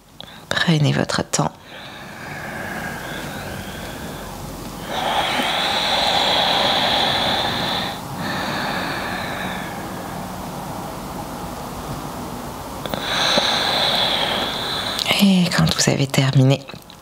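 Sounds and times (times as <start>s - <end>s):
woman breathing deeply: 1.6s - 12.0s, 12.8s - 15.2s.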